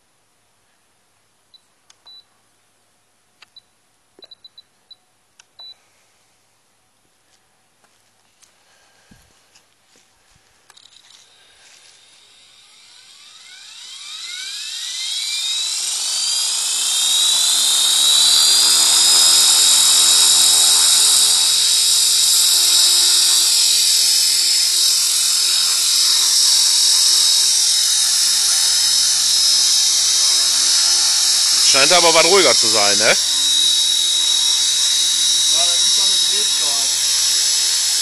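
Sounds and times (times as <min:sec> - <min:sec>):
rc helicopter whine: 0:10.7 - 0:38.0
low rotor hum: 0:11.4 - 0:38.0.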